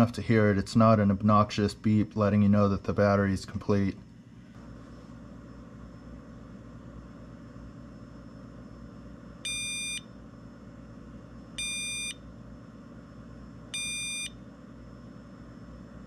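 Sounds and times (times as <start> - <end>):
battery charger beeping: 9.4 - 10.1, 11.6 - 12.2, 13.7 - 14.4.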